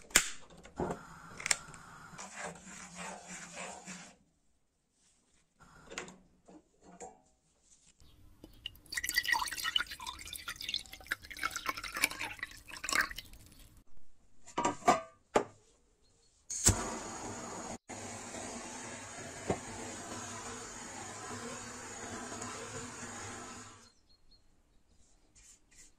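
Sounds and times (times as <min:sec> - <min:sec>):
liquid pouring into ceramic bowl: 0:08.4 - 0:13.8
gas torch lighting pop: 0:16.5 - 0:17.8
gas torch hissing: 0:16.5 - 0:23.9.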